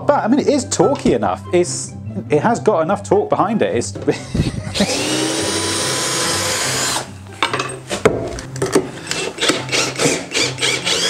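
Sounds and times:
cordless drill driving screw: 4.8s - 7.1s, 9.0s - 11.0s
drill clicks: 9.0s - 11.0s.

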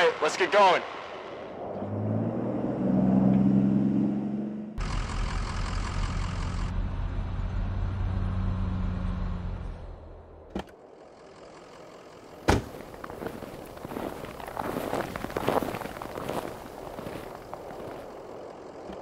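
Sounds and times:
vehicle engine idling: 4.8s - 7.7s, 9.9s - 19.0s
footsteps in snow: 12.3s - 19.0s.

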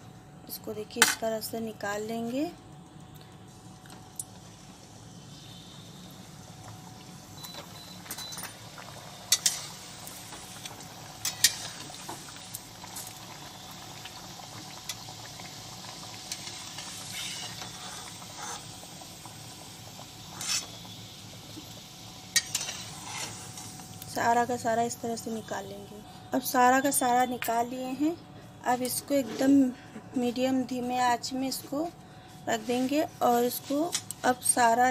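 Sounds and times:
food deep-frying in hot oil: 3.5s - 25.8s, 32.7s - 34.9s.

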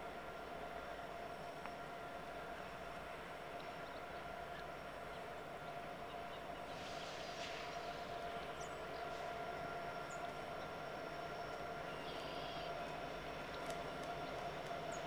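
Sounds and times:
distant diesel train hum: 0.0s - 15.0s
open-air hiss: 0.0s - 15.0s.

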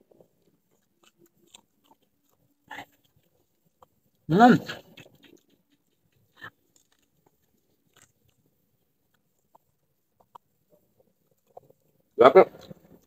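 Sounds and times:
biting crunchy fruit: 0.1s - 13.0s
mouth clicks: 0.7s - 8.4s.

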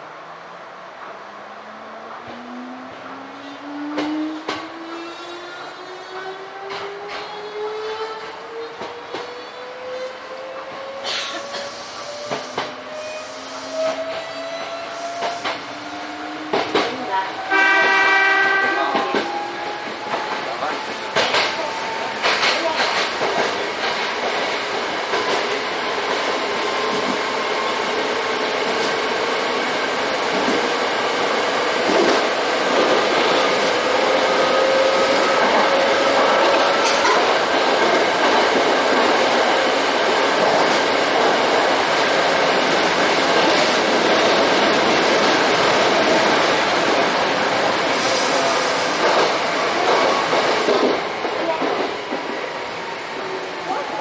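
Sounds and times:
train wheels rumbling on rail: 1.0s - 54.0s.

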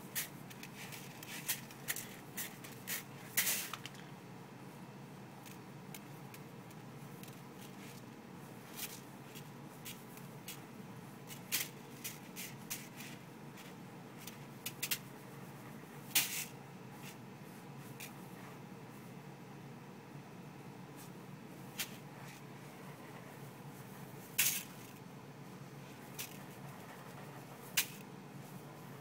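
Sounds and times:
dry rice rustling and scattering: 0.1s - 4.0s.

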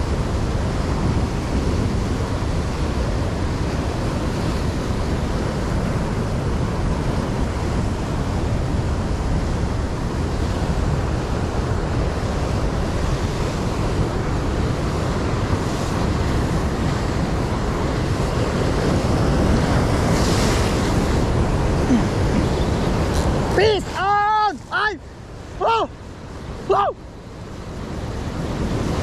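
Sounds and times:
sea surf breaking over rocks: 0.0s - 29.0s
wind buffeting microphone: 0.0s - 29.0s.

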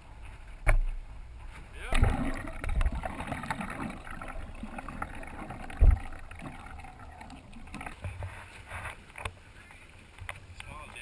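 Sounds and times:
muffled underwater sloshing: 1.8s - 10.3s
low underwater knocks: 1.9s - 8.2s.

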